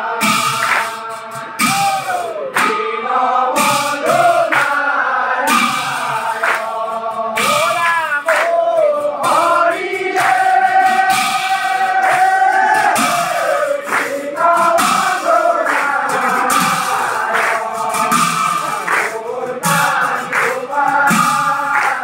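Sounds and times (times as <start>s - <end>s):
men chanting in unison: 0.0s - 22.0s
hand claps: 0.2s - 22.0s.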